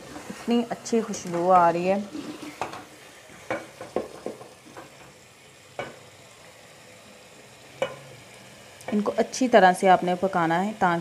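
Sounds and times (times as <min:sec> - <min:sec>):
wooden spoon scraping a metal pot: 0:00.0 - 0:02.9
food sizzling: 0:00.0 - 0:11.0.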